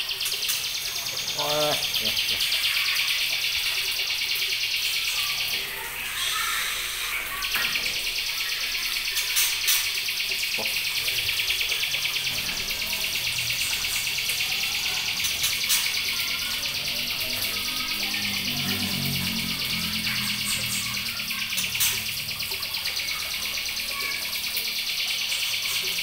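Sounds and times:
high rapidly pulsing buzz: 0:10.8 - 0:24.8.

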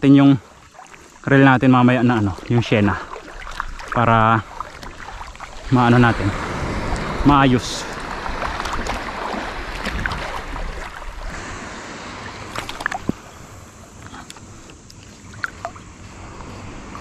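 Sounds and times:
water noise: 0:00.0 - 0:17.0
wind: 0:00.0 - 0:17.0.

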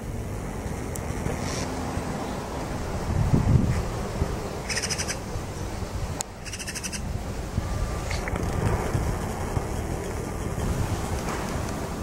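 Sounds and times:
magpie rattling chatter: 0:04.7 - 0:05.2, 0:06.4 - 0:07.1.

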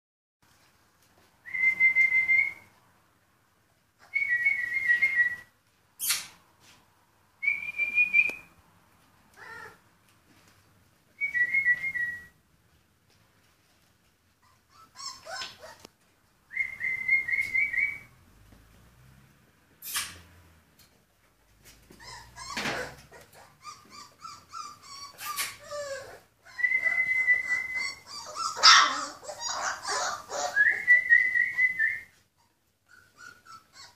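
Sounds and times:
puppy squeaking and yelping: 0:06.0 - 0:06.4, 0:09.4 - 0:09.8, 0:14.4 - 0:16.0, 0:19.8 - 0:20.3, 0:21.7 - 0:30.9, 0:32.3 - 0:33.9.

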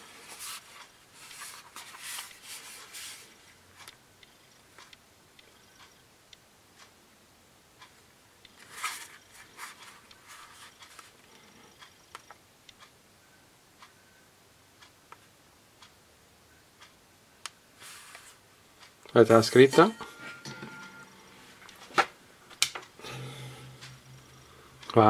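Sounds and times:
rustle: 0:08.6 - 0:11.2, 0:17.8 - 0:18.4.

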